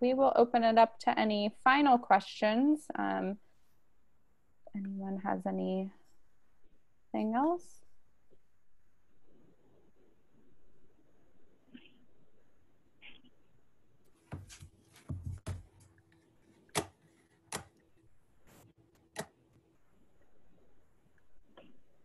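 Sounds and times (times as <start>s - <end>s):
sharp clicks and knocks: 16.7s - 17.8s.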